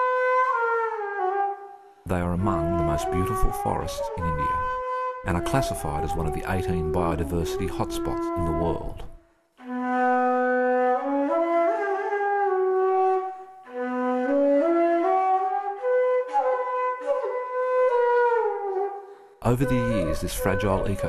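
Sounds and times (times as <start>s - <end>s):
solo flute melody: 0.0s - 21.0s.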